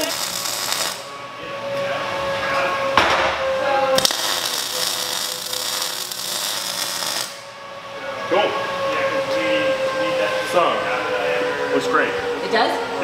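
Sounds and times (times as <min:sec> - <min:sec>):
welder arc crackling: 0:00.0 - 0:01.1, 0:04.0 - 0:07.5.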